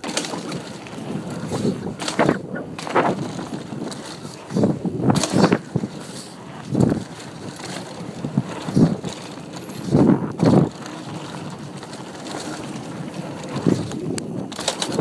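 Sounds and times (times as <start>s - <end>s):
tyres rolling on dirt: 0.0s - 15.0s
wind buffeting microphone: 0.0s - 15.0s.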